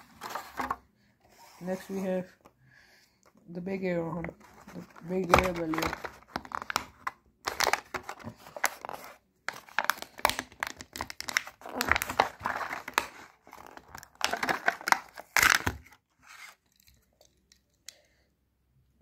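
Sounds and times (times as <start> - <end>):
plastic packaging crinkling and tearing: 4.4 - 17.4.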